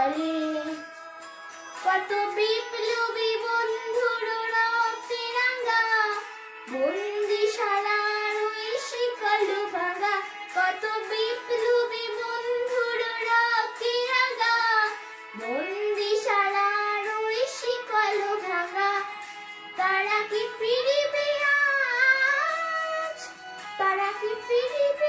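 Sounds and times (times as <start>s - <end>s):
girl singing: 0.0s - 1.0s, 1.7s - 25.0s.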